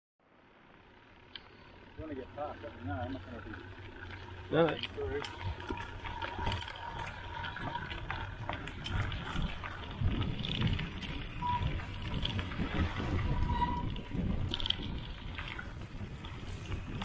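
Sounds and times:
bike knocks and rattles: 4.0 - 17.0.

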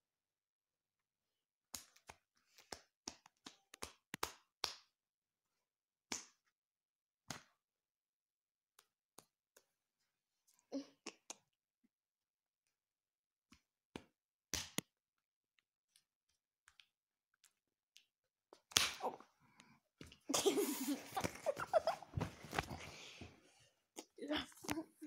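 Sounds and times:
rustling of clothing and bedding: 20.3 - 23.6.

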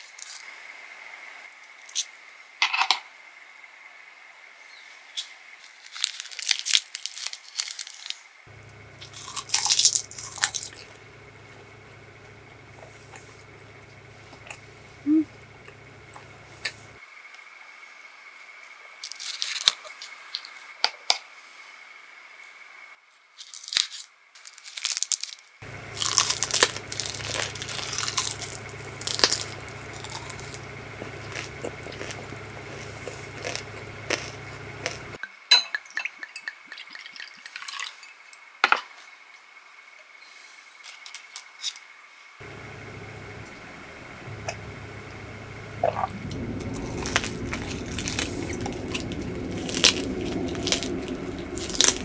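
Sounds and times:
crisp seaweed crunching: 5.6 - 8.2, 9.0 - 11.0, 19.0 - 19.9, 23.4 - 35.2, 45.8 - 52.0
wet squishes: 24.5 - 35.2, 45.2 - 52.0.

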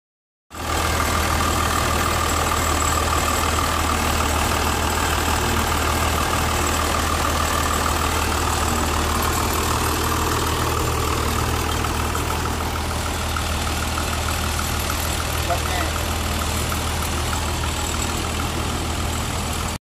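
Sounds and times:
low engine drone: 0.6 - 19.8.

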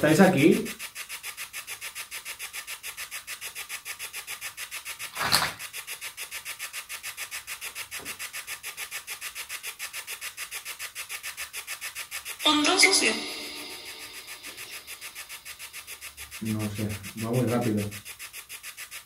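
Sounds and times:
radio scanner static pulses: 12.4 - 18.1.

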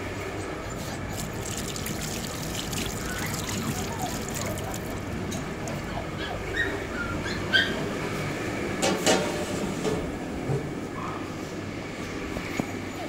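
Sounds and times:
puppies crying: 0.7 - 7.9.

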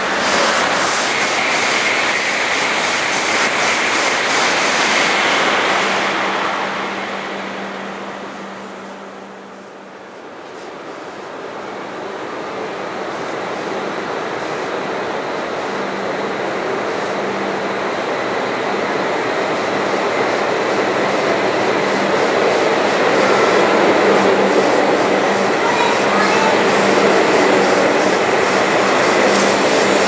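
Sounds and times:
high-speed train pulling out: 0.0 - 30.0.

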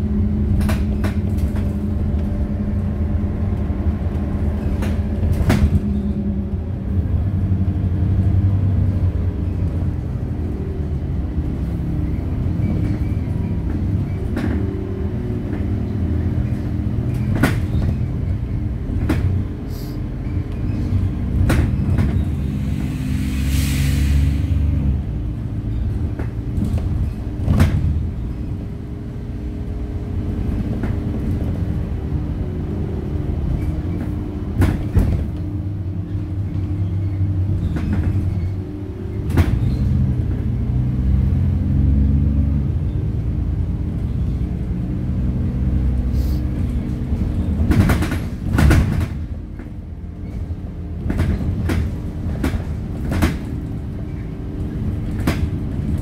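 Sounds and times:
bus engine running: 0.0 - 56.0
road rumble: 0.0 - 56.0
bus body knocks and rattles: 0.1 - 2.6, 4.2 - 6.5, 12.1 - 19.6, 20.2 - 22.5, 25.4 - 28.9, 30.2 - 31.8, 33.4 - 40.6, 46.5 - 56.0.

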